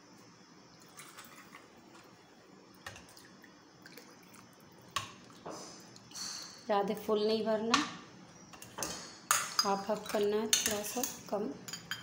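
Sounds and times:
ladle clinking on steel pot: 8.8s - 12.0s.

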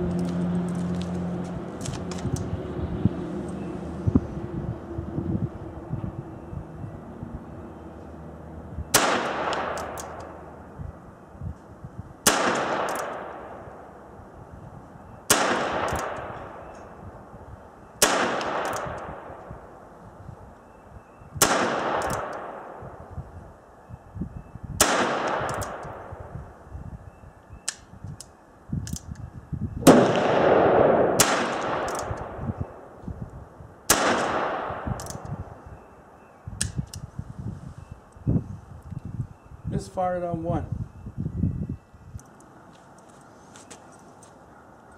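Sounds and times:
revolver gunshots: 8.9s - 10.3s, 12.2s - 13.8s, 15.3s - 16.6s, 18.0s - 19.4s, 21.4s - 23.0s, 24.8s - 26.2s, 29.8s - 32.5s, 33.9s - 35.0s
faint revolver clicks: 35.0s - 35.3s.

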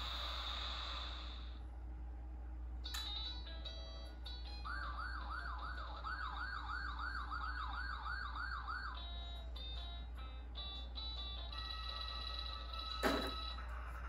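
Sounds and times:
steady low hum: 0.0s - 14.0s
siren yelping: 4.5s - 9.4s.

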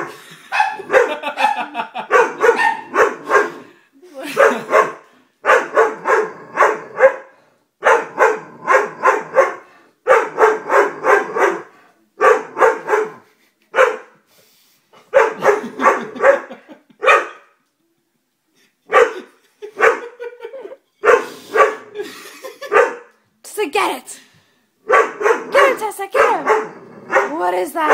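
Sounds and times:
dog barking: 0.5s - 3.7s, 4.3s - 14.2s, 15.1s - 17.5s, 18.9s - 20.2s, 21.0s - 22.0s, 22.6s - 23.1s, 24.9s - 27.9s.

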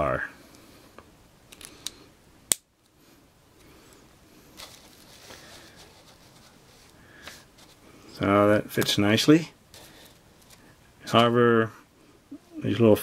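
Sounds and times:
plastic toy pieces handled: 4.6s - 7.8s.

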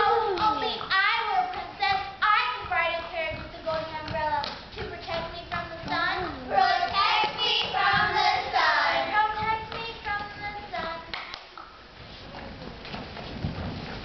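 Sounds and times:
background noise: 0.0s - 14.0s
children singing: 6.4s - 9.6s.

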